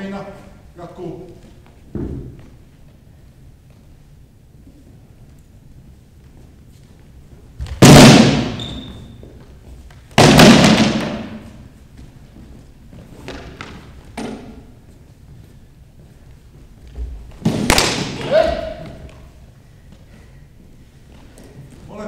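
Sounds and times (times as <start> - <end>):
swords striking wooden shields: 7.8 - 8.6, 10.2 - 11.4, 17.4 - 19.0.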